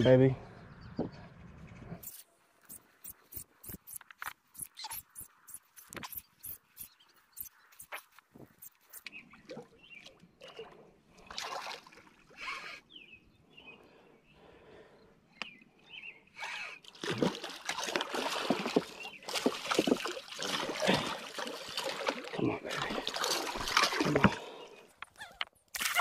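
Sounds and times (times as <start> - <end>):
fish splashing in water: 16.9 - 24.6.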